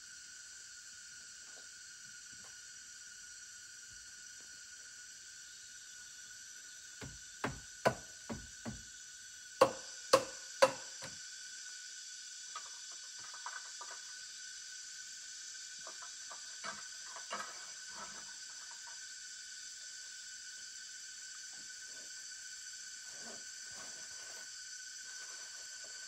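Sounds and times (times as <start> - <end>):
high-pitched insect drone: 0.0 - 26.0
knocks on wooden poles: 7.0 - 8.8, 9.6 - 11.2.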